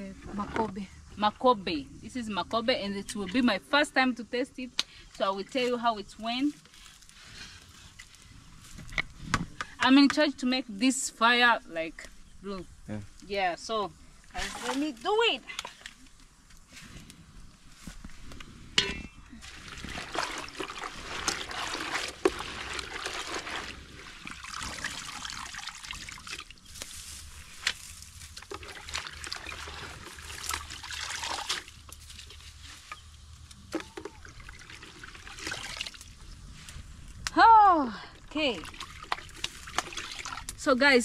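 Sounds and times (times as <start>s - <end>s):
water sloshing in a basin: 14.2s - 16.2s, 18.8s - 27.2s, 27.9s - 33.0s, 33.7s - 36.3s, 38.1s - 40.8s.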